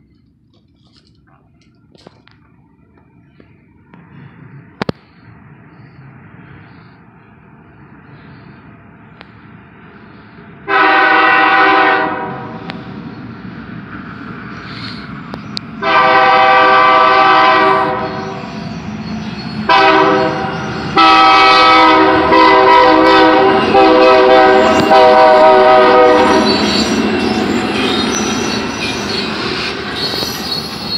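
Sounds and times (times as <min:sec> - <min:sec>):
train engine rumbling past: 0:00.0 - 0:30.9
locomotive air horn blasts: 0:10.7 - 0:12.7, 0:15.8 - 0:18.4, 0:19.7 - 0:26.6.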